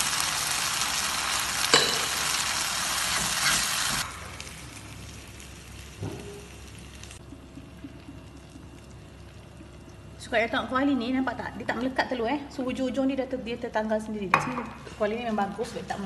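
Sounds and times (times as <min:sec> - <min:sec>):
stir-fry sizzling in a wok: 0:00.0 - 0:07.2.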